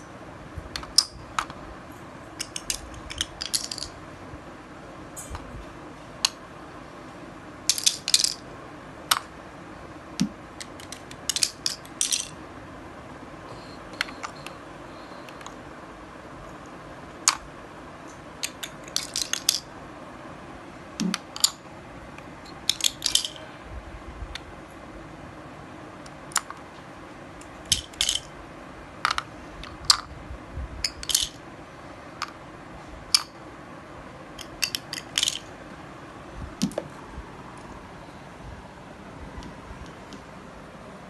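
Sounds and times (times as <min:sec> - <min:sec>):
wooden game pieces clicking: 0:00.7 - 0:01.6, 0:02.4 - 0:04.0, 0:07.7 - 0:08.4, 0:10.2 - 0:12.4, 0:18.4 - 0:19.7, 0:21.0 - 0:21.6, 0:22.5 - 0:23.4, 0:26.3 - 0:26.6, 0:27.4 - 0:28.3, 0:29.0 - 0:30.1, 0:30.8 - 0:31.4, 0:34.4 - 0:35.5.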